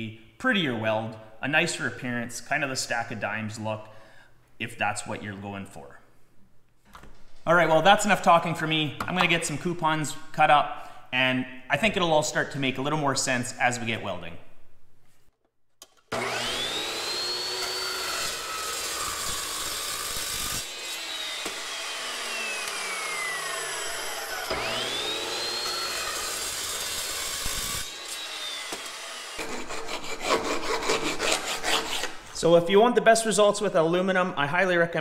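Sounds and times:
miter saw cutting aluminum: 0:16.1 - 0:32.2.

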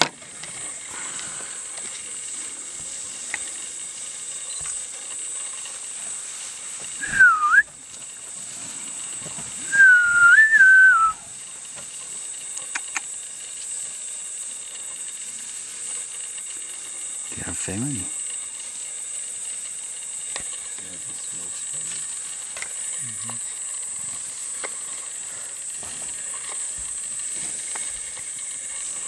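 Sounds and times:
high insect drone: 0:00.0 - 0:29.0
person whistling: 0:07.0 - 0:07.7, 0:09.6 - 0:11.2.

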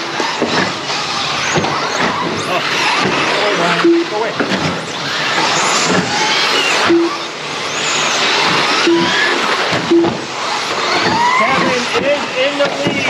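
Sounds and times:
electric motors whining: 0:00.0 - 0:13.0
tyres and running gear noise: 0:00.0 - 0:13.0
short low beeps: 0:03.8 - 0:04.2, 0:06.8 - 0:07.4, 0:08.8 - 0:09.3, 0:09.9 - 0:10.3.

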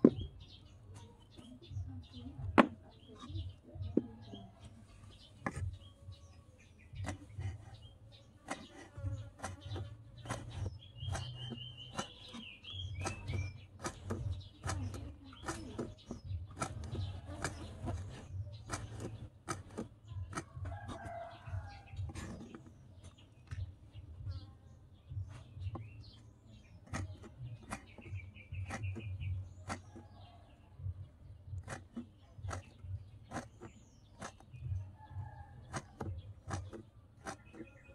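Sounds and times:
knife chopping on wooden board: 0:00.0 - 0:00.3, 0:02.4 - 0:04.3, 0:06.9 - 0:07.8, 0:08.4 - 0:22.7, 0:26.8 - 0:30.4, 0:31.4 - 0:37.9.

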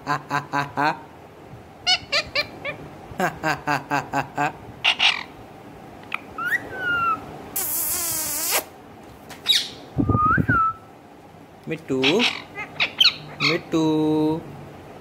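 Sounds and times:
parakeet chattering: 0:01.8 - 0:02.8, 0:04.8 - 0:05.4, 0:06.0 - 0:08.7, 0:12.0 - 0:13.8
parakeet gliding whistles: 0:06.4 - 0:08.6
parakeet harsh screech: 0:06.5 - 0:08.7.

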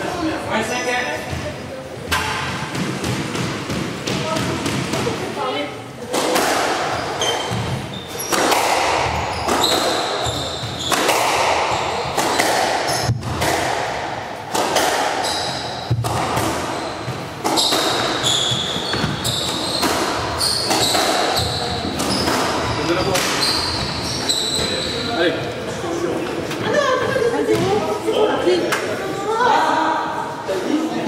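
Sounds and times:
sneakers squeaking on wooden floor: 0:06.8 - 0:13.3, 0:15.2 - 0:25.4
squash ball cracking off rackets: 0:10.8 - 0:16.8.

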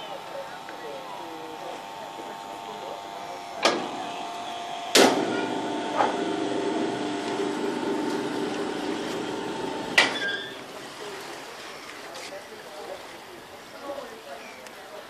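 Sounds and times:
lock gate machinery humming: 0:00.0 - 0:10.7
machinery clanking: 0:01.9 - 0:10.7.

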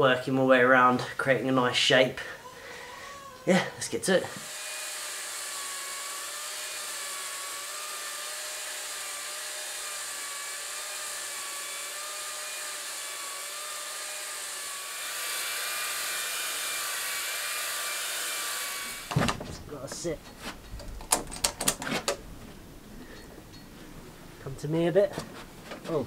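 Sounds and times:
small motor whining: 0:04.3 - 0:19.1.

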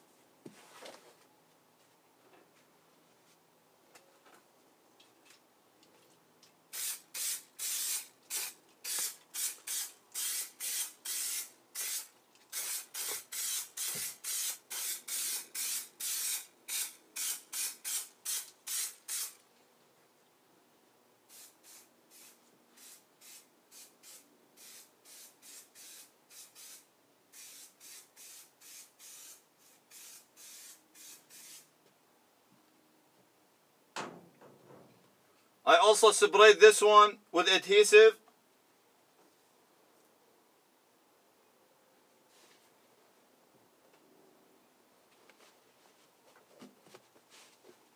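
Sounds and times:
aerosol spray hissing bursts: 0:06.7 - 0:19.4, 0:21.3 - 0:31.7.

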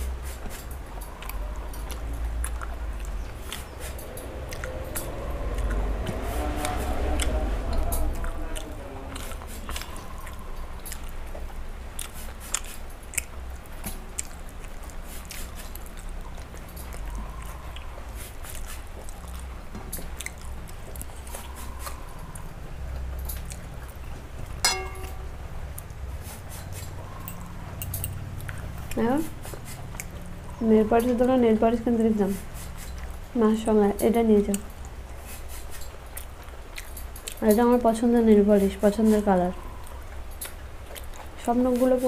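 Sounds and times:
chewing with wet mouth clicks: 0:00.2 - 0:24.2, 0:25.8 - 0:33.3, 0:33.9 - 0:42.0
sharp clink: 0:24.6 - 0:25.4.

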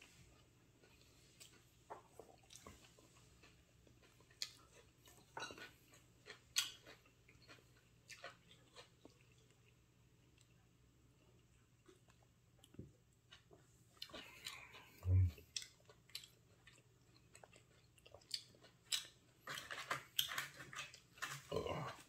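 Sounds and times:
person chewing: 0:00.0 - 0:22.0.

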